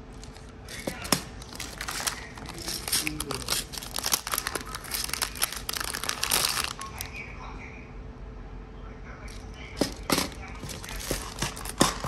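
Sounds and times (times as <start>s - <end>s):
plastic packaging crinkling: 0.0s - 7.2s, 9.8s - 12.0s
plastic cases clattering on table: 0.7s - 3.8s, 9.8s - 12.0s.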